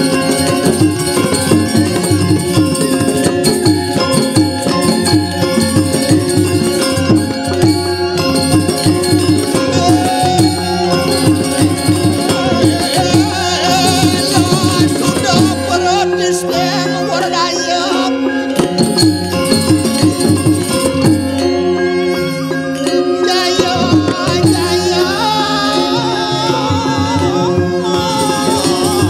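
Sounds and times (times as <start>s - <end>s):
gamelan music: 0.0s - 29.0s.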